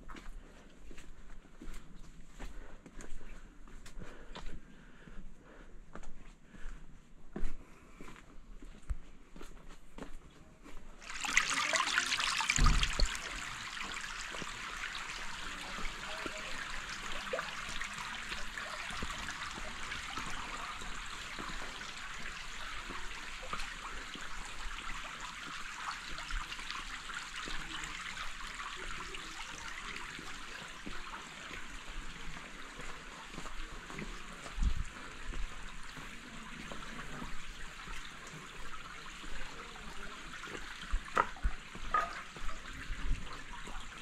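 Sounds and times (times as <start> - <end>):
stream water trickling: 11.0 - 44.0.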